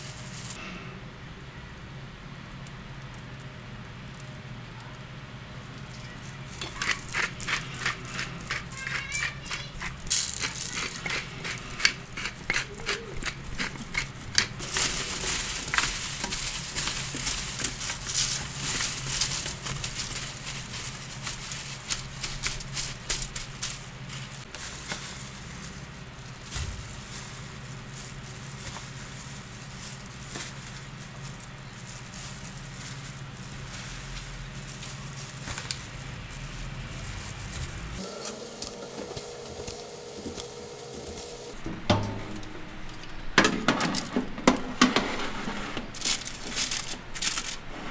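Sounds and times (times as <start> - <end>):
handling noise: 0.0 - 0.8, 5.6 - 47.9
salt and pepper grinder grinding: 6.4 - 41.6, 45.9 - 47.8
oven door opening knocks and clicks: 41.7 - 42.6.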